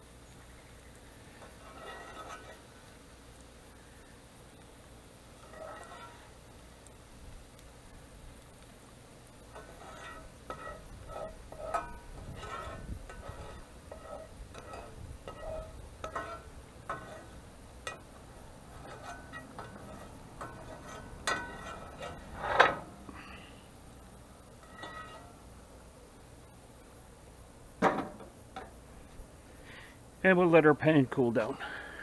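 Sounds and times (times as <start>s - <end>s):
wire strainer scraping frying pan: 1.4s - 2.8s, 5.3s - 6.4s, 9.4s - 23.5s, 24.5s - 25.5s
metal clank: 9.5s - 18.1s, 18.8s - 23.0s, 24.6s - 25.4s.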